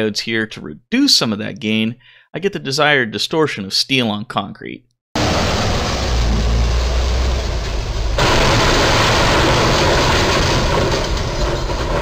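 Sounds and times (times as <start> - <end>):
road noise: 5.2 - 12.0
truck engine rumbling: 5.2 - 12.0.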